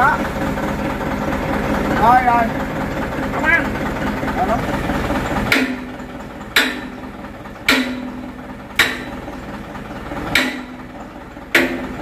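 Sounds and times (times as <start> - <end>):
hammer striking metal: 5.5 - 9.4, 10.3 - 12.0.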